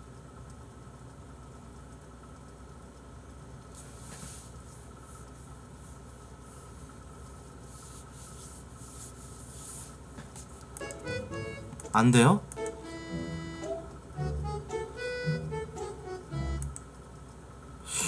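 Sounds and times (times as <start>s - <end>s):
low electrical hum: 0.0s - 18.0s
faint rustling: 3.8s - 10.7s.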